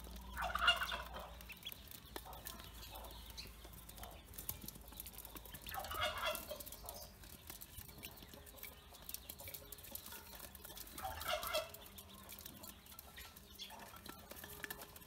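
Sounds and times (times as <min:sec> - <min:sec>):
ducklings peeping: 0:00.0 - 0:15.0
fowl calls: 0:00.4 - 0:01.3, 0:05.7 - 0:06.6.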